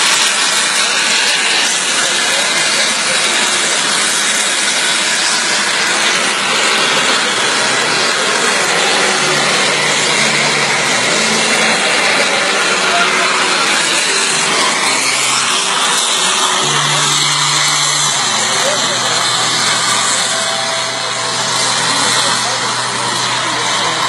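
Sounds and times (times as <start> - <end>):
model plane engine drone: 0.0 - 24.0.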